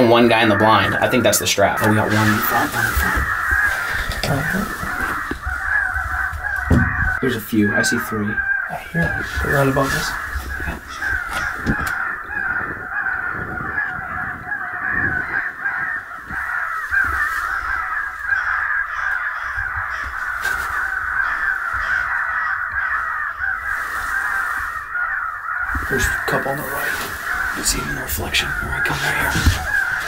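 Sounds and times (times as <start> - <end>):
crows cawing from a caller: 0.0 - 30.0.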